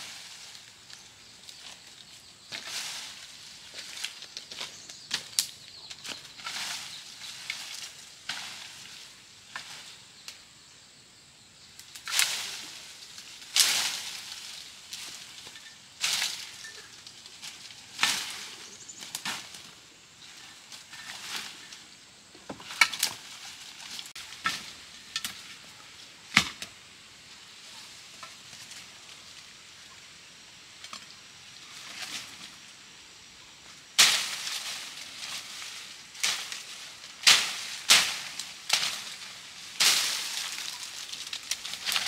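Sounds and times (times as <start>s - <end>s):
dry leaves and twigs crackling: 0.0s - 10.5s, 11.6s - 42.0s.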